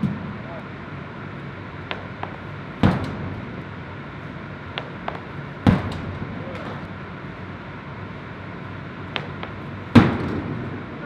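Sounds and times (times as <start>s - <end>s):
steady low hum: 0.0s - 11.0s
discus thudding into netting: 4.7s - 7.0s, 9.1s - 10.8s.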